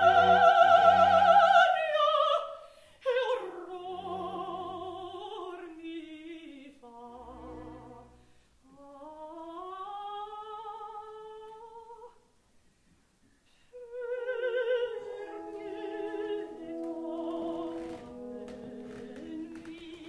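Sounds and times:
operatic soprano singing with vibrato: 0.0 - 12.2, 13.7 - 20.0
orchestra playing held notes: 14.8 - 20.0.

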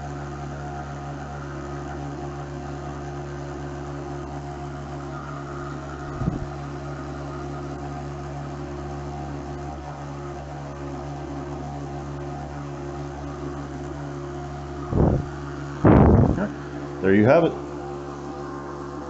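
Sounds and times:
electric pump humming: 0.0 - 19.0
low thump: 14.9 - 16.4.

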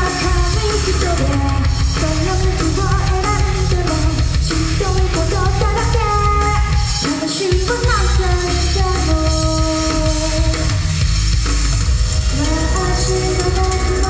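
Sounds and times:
woman singing into microphone: 0.0 - 10.8, 12.3 - 14.0
backing music with drums: 0.0 - 14.0.

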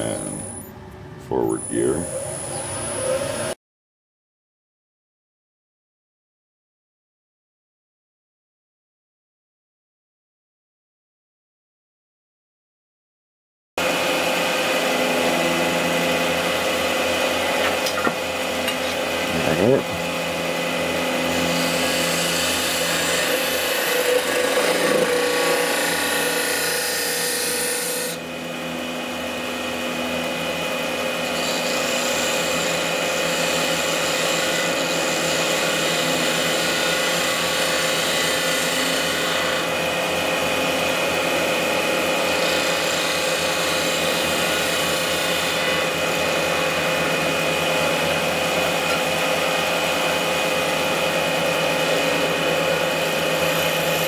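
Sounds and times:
lathe motor hum: 13.8 - 54.0.

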